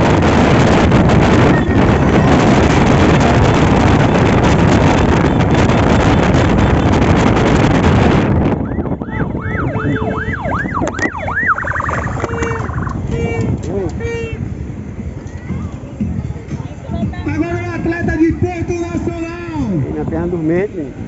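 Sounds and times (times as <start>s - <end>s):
wind rumbling on microphone: 0.0s - 21.0s
siren yelping: 8.5s - 13.2s.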